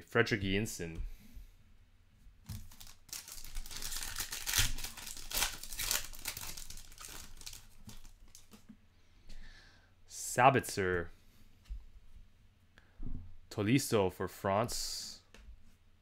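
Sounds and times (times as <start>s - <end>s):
foil wrapper crinkling and tearing: 2.5s - 8.6s.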